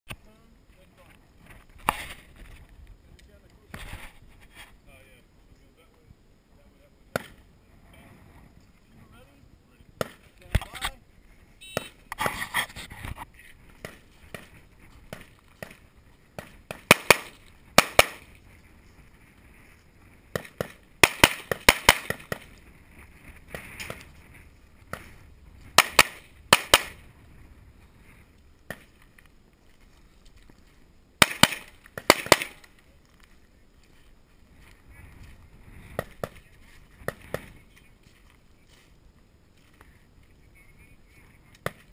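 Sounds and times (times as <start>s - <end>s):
pistol shots: 16.7s - 18.3s, 20.4s - 22.5s, 25.8s - 27.0s, 31.2s - 32.6s.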